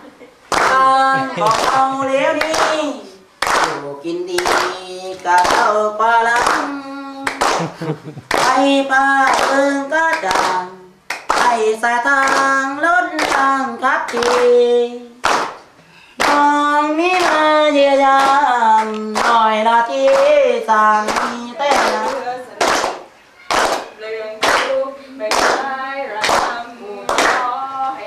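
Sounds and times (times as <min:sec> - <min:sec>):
hands clapping in time: 0:00.5 - 0:02.8, 0:03.4 - 0:03.8, 0:04.4 - 0:04.8, 0:06.4 - 0:06.7, 0:07.3 - 0:08.7, 0:09.3 - 0:11.6, 0:15.2 - 0:16.4, 0:21.1 - 0:24.7, 0:26.2 - 0:27.5
boys singing together: 0:00.5 - 0:15.2, 0:16.2 - 0:23.2, 0:23.8 - 0:28.0.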